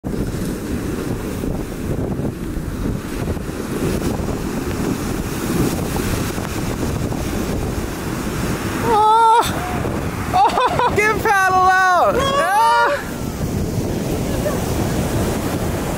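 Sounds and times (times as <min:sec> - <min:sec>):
ocean waves breaking: 0:00.0 - 0:15.9
wind buffeting microphone: 0:00.0 - 0:15.9.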